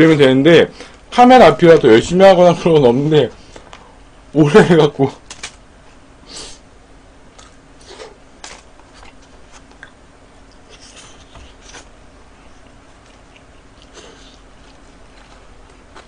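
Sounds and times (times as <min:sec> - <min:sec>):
person chewing: 0:07.4 - 0:08.2, 0:12.5 - 0:16.0.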